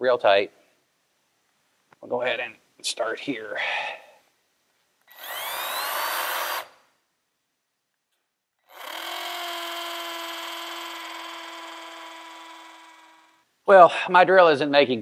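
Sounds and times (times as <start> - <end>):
cordless drill boring into concrete: 5.1 - 6.8, 8.6 - 13.5.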